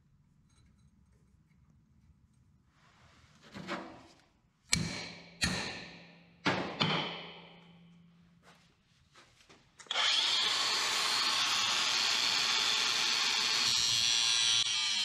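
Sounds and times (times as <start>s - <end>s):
hammer striking steel anvil: 4.7s - 7.9s.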